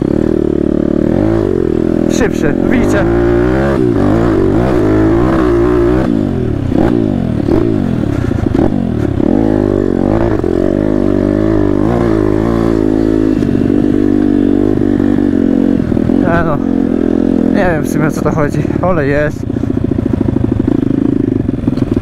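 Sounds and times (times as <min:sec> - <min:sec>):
pitbike engine revving: 0:00.0 - 0:22.0.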